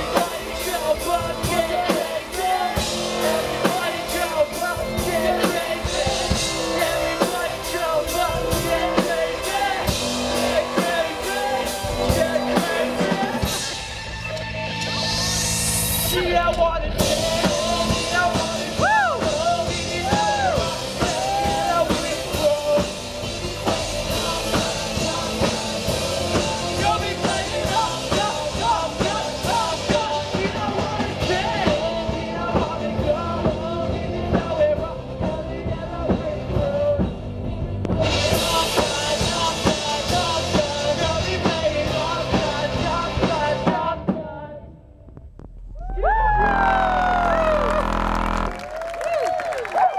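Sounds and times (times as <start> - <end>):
person singing: 0.0 - 13.8, 16.1 - 37.1
live rock band playing: 0.0 - 44.0.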